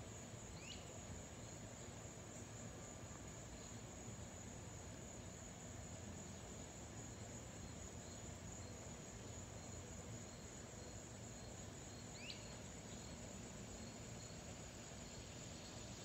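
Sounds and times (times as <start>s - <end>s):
bird chirp: 12.2s - 13.0s.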